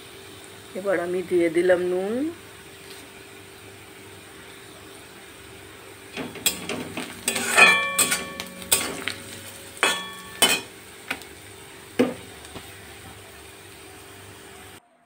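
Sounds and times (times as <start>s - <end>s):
onions frying: 0.0s - 14.8s
pan ringing: 6.1s - 10.7s
metal spatula scraping a pan: 6.2s - 10.7s.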